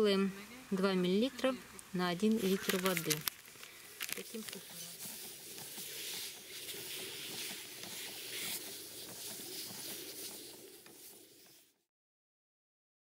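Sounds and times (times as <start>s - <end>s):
sprayer wand hissing: 2.2s - 11.8s.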